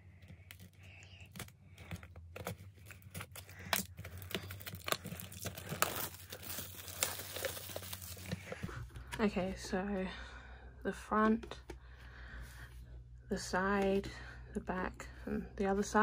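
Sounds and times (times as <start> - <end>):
plastic shrink wrap crinkling: 0.4 - 8.7.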